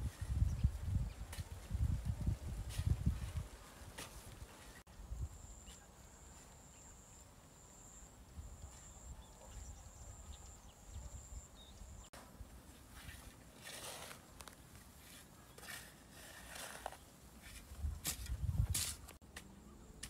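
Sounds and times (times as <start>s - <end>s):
hoe striking soil: 2.7s - 4.8s, 13.0s - 19.2s.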